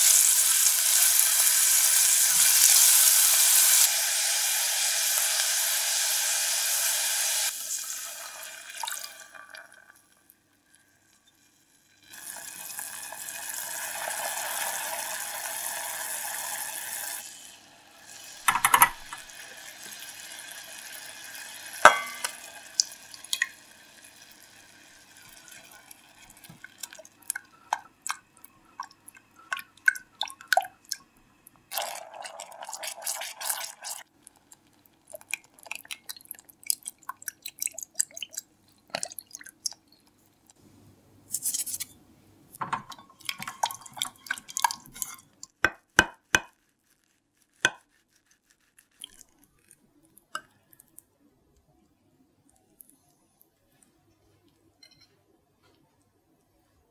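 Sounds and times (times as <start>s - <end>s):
sauce bubbling and popping: 18.0s - 40.6s, 42.8s - 46.6s, 47.6s - 47.9s
spatula scraping a pan: 43.9s - 49.1s.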